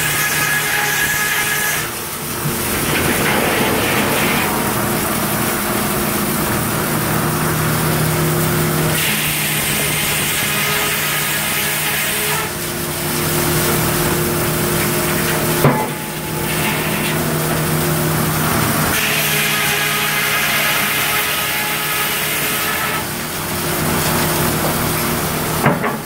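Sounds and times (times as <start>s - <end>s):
circular saw cutting log: 0.0s - 26.0s
machine hum: 1.7s - 10.0s.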